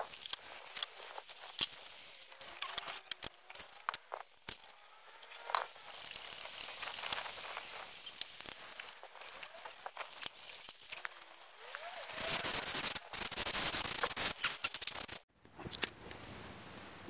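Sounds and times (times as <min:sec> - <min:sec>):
rag rubbing on wood: 0:11.7 - 0:15.2.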